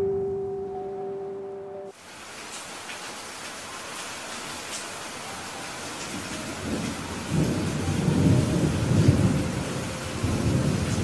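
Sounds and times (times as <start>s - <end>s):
rain hissing: 1.9s - 11.0s
thunder rumbling: 6.0s - 11.0s.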